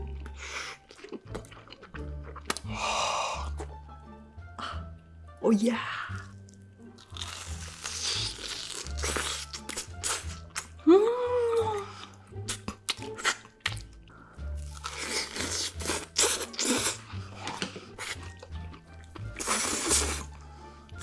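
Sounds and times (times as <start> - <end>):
crunching and chewing: 0.0 - 2.7, 6.2 - 10.8, 12.0 - 21.0.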